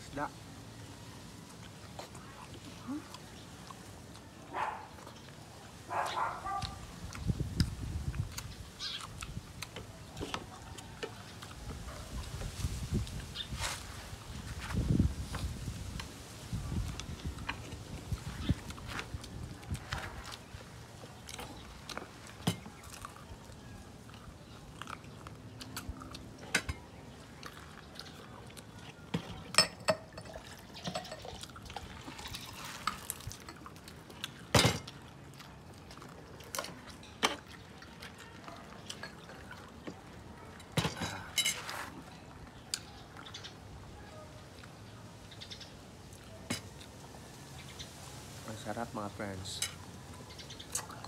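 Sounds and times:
cutlery scraping a plate: 41.3s - 41.9s.

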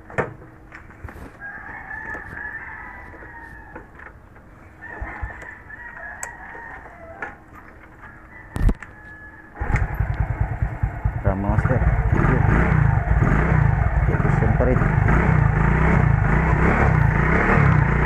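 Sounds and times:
rooster crowing: 1.4s - 4.1s, 4.8s - 10.3s.

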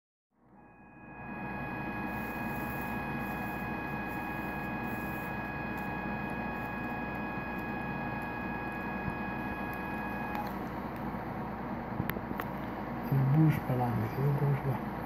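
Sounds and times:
electrical hum: 0.4s - 15.0s.

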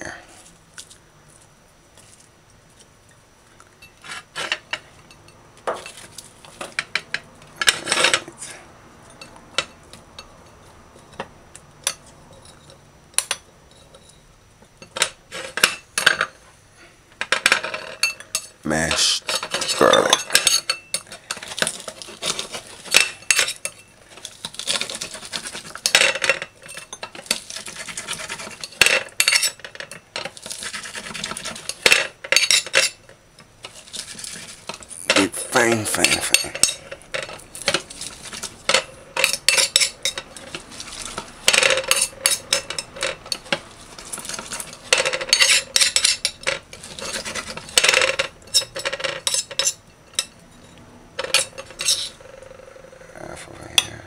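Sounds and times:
knife scraping and clicking on plate: 36.0s - 52.2s.

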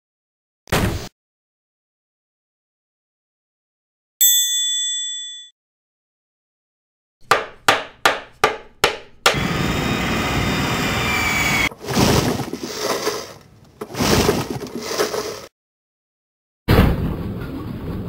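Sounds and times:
bell-like ding: 4.2s - 5.5s
sharp knocks: 7.2s - 9.4s.

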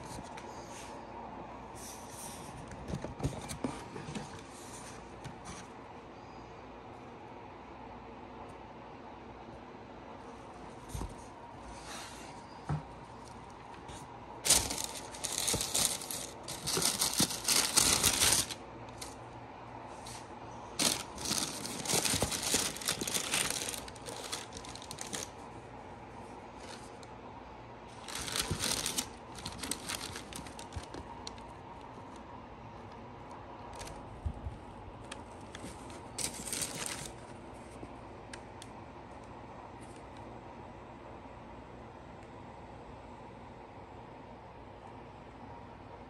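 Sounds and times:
tissue paper rustling: 13.9s - 19.2s, 20.0s - 25.4s, 27.9s - 31.1s, 35.6s - 37.2s.

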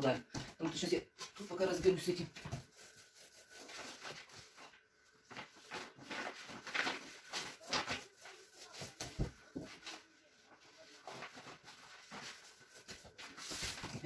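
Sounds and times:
paper rustling and crinkling: 1.2s - 14.0s.

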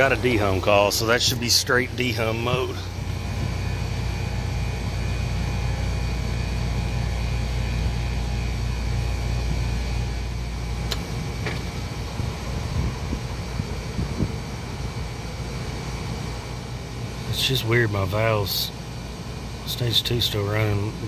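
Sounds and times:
compressors humming: 0.0s - 21.0s
sharp click: 10.9s - 11.7s.

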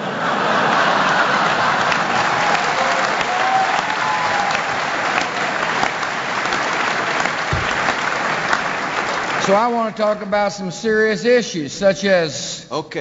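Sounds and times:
large audience applauding: 0.0s - 9.9s.

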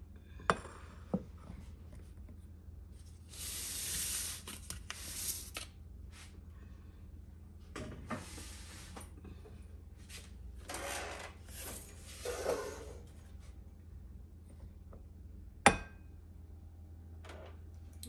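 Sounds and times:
tray scraping and rubbing: 11.5s - 13.1s.

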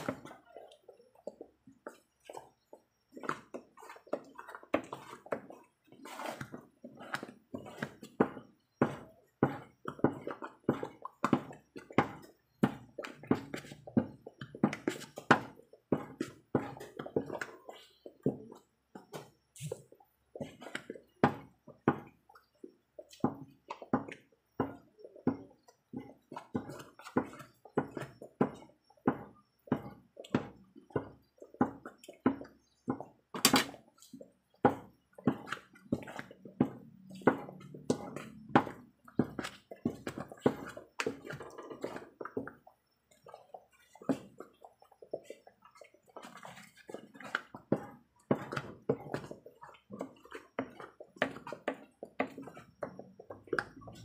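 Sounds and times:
thick paste squelching when stirred: 0.0s - 54.0s.

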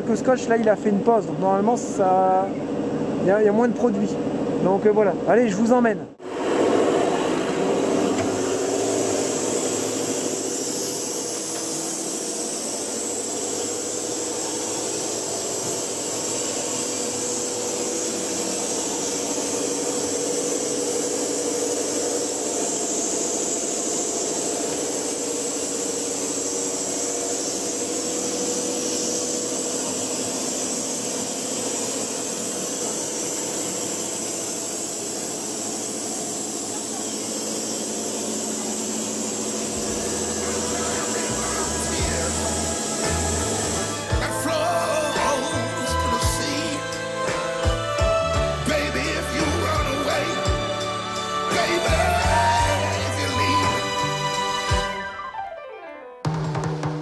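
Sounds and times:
machine hum: 6.0s - 55.1s
strong hiss of air: 6.2s - 54.5s.

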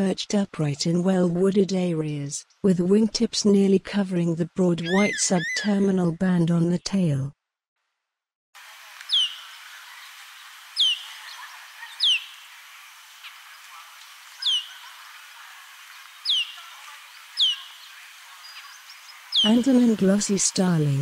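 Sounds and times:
bird whistled calls: 4.8s - 5.7s, 9.1s - 9.5s, 10.8s - 12.3s, 14.4s - 14.8s, 16.2s - 16.6s, 17.4s - 17.9s
steady hiss: 8.6s - 21.0s.

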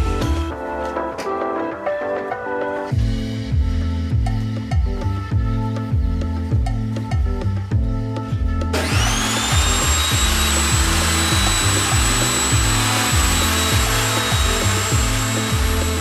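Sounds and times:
background music with steady beat: 0.0s - 16.0s
table saw motor whining: 8.7s - 16.0s.

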